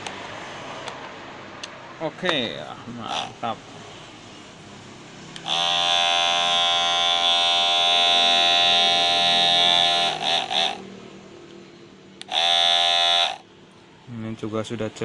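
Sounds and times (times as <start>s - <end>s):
hair clipper buzzing: 3.1s - 3.4s, 5.4s - 10.8s, 12.2s - 13.4s.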